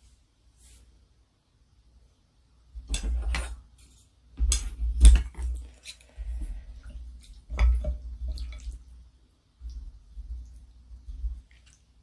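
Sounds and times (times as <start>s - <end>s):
noodles and broth stirring: 2.8s - 12.0s.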